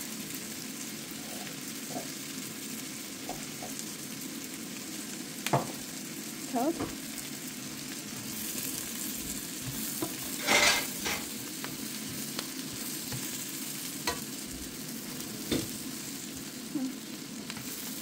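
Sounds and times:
vegetables sizzling in butter: 0.0s - 18.0s
spatula scraping frying pan: 9.6s - 13.4s
spatula tapping pan: 14.0s - 14.2s.

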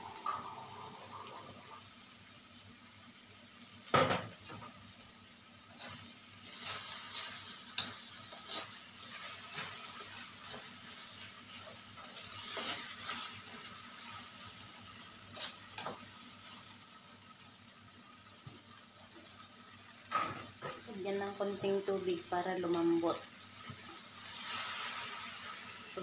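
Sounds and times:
meat sizzling: 0.0s - 26.0s
spatula scraping a wok: 5.8s - 14.4s, 24.2s - 26.0s.

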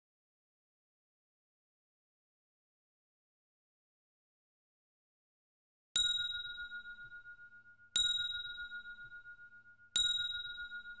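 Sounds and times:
bell-like timer ding: 6.0s - 11.0s.

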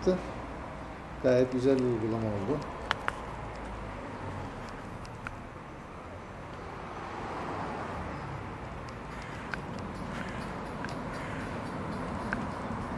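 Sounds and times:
street traffic hum: 0.0s - 12.9s
sharp clicks: 1.5s - 3.8s, 8.8s - 12.9s.

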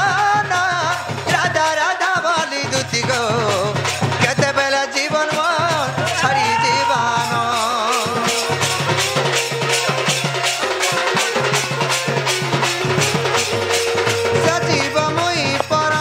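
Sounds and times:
percussion quick steady beat: 0.0s - 16.0s
person singing: 0.0s - 16.0s
held melodic note: 7.2s - 16.0s.

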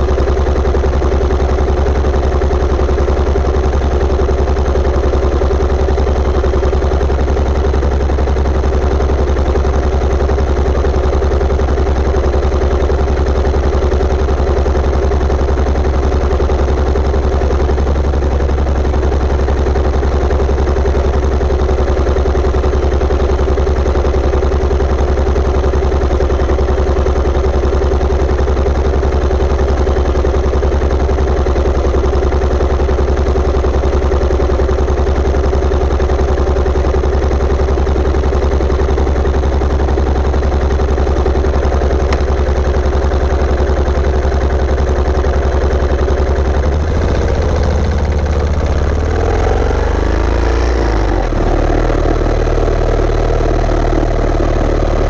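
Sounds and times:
motorcycle engine running steadily: 0.0s - 55.0s.

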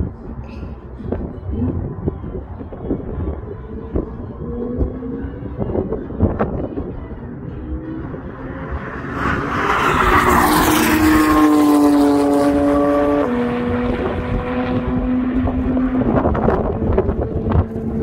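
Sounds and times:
wind buffeting microphone: 0.0s - 18.0s
sports car engines passing: 0.1s - 18.0s.

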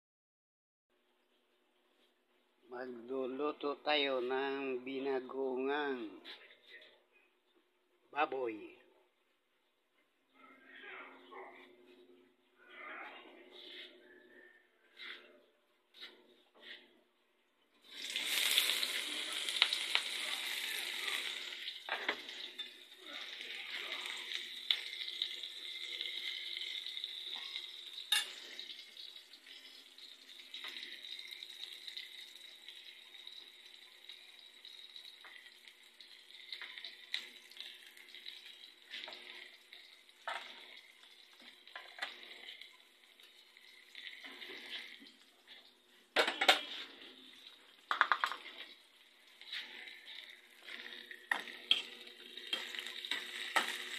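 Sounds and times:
onion sizzling in hot oil: 17.8s - 53.9s.

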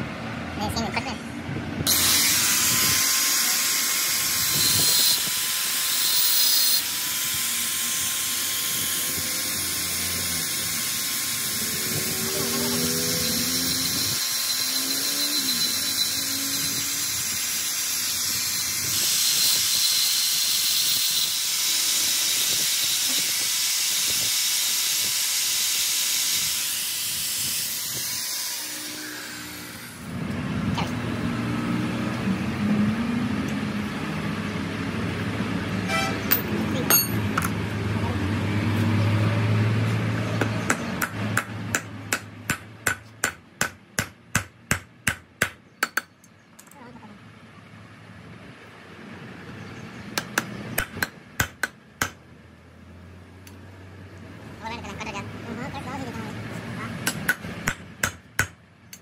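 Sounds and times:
angle grinder grinding metal: 1.9s - 30.2s
thin high whine: 11.6s - 17.3s
hammer tapping metal: 36.2s - 37.6s, 40.4s - 46.1s, 57.0s - 59.0s.

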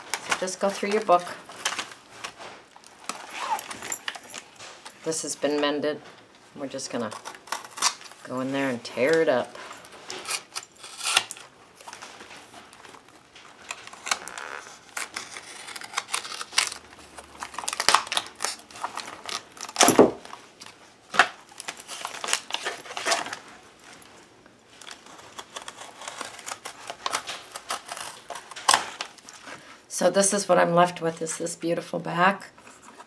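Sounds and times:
paper ripping: 0.0s - 4.5s, 10.1s - 20.1s, 24.8s - 29.4s
pages rustling: 0.0s - 5.2s, 6.1s - 29.7s.

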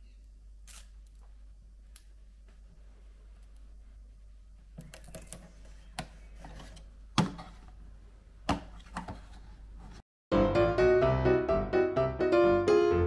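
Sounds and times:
plastic parts clicking and knocking: 4.8s - 7.7s.

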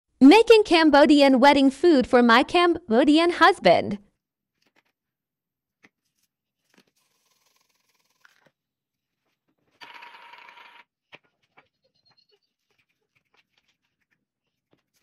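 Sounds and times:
spice grinder grinding: 6.8s - 8.6s.

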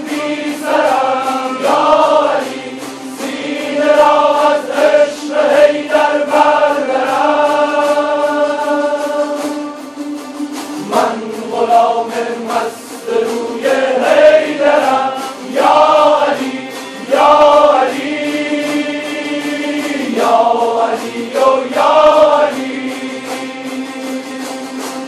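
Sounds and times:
lutes strummed over a drone: 0.0s - 25.0s
men chanting in unison: 10.9s - 23.6s.

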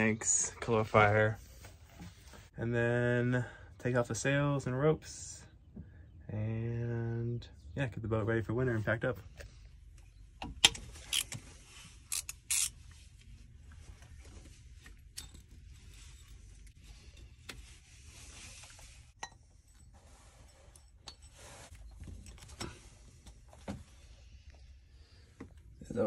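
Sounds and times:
rubber belt rubbing and scraping: 10.8s - 19.2s.

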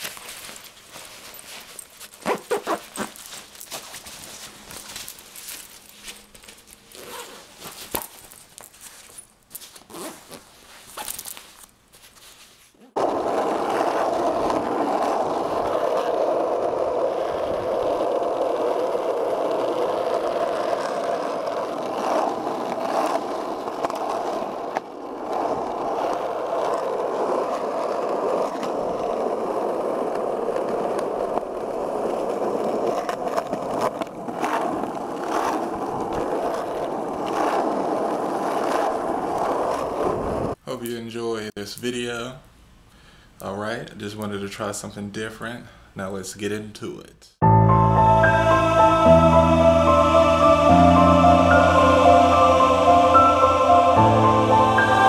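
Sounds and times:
rustling of a nylon backpack: 0.0s - 12.9s
skateboard wheels rolling on concrete: 0.0s - 40.6s, 47.4s - 55.0s.

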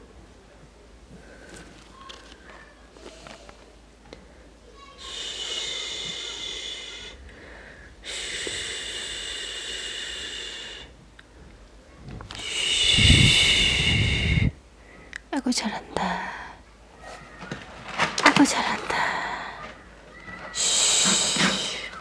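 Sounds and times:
rubbing and handling noise: 16.9s - 22.0s.

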